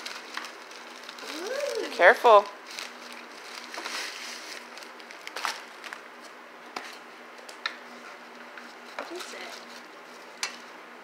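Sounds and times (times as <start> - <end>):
paper envelope rustling: 0.0 - 7.0.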